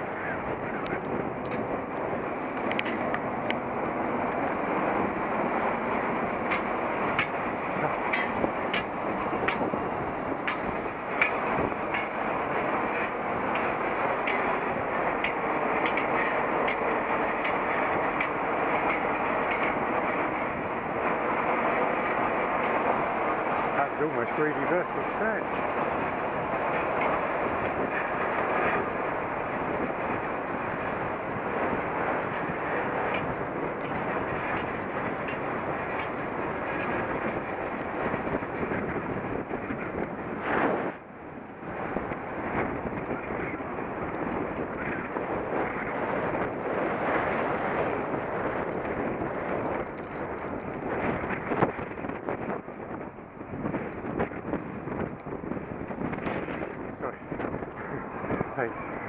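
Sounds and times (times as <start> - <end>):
wind noise: 0.0 - 59.0
clicks and rattles from bumps: 0.8 - 5.2, 6.4 - 9.7, 12.9 - 23.1, 43.0 - 52.8
bicycle tyres rolling on dirt: 41.6 - 59.0.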